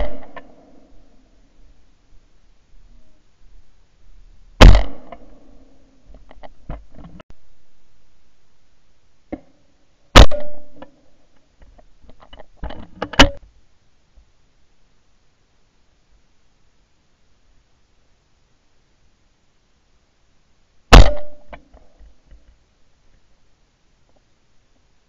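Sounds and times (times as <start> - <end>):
shotgun shots: 0.0 - 0.8, 4.6 - 5.4, 10.2 - 10.8, 20.9 - 21.5.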